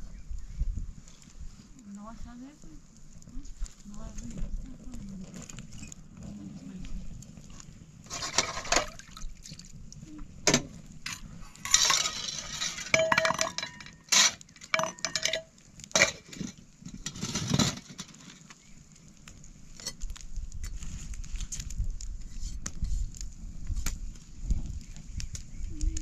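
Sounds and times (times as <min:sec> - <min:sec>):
hard objects clinking and clattering: 0:10.5 - 0:18.3.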